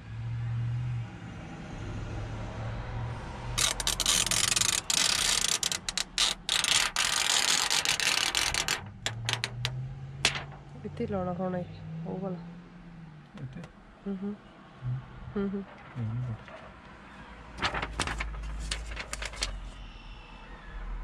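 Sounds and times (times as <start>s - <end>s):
plastic film crackling: 3.6s - 10.6s, 17.6s - 19.8s
low steady hum: 17.6s - 18.2s.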